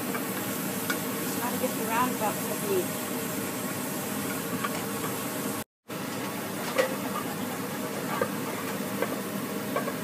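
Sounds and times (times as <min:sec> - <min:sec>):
batter sizzling in a pan: 0:00.0 - 0:10.0.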